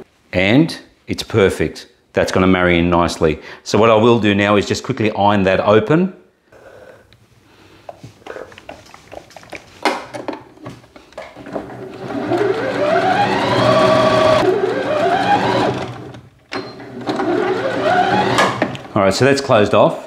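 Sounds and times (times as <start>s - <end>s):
sewing machine motor whine: 11.8s - 18.8s.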